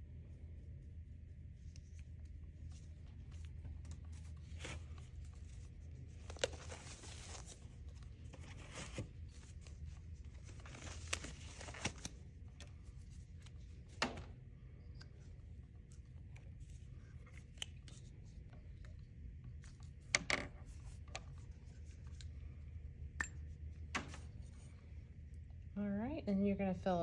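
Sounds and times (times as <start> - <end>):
low room hum: 0.0 - 27.0
packaging and gloves crinkling: 2.7 - 13.9.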